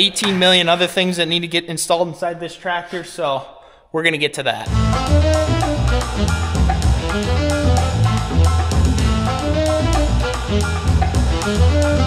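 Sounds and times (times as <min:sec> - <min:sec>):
bass line: 0:04.7 - 0:12.0
drum kit beat: 0:04.7 - 0:12.0.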